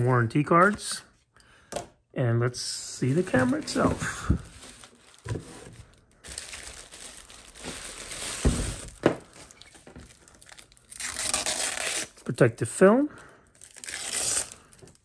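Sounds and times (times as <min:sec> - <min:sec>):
plastic wrapping crinkling: 0:03.0 - 0:12.0.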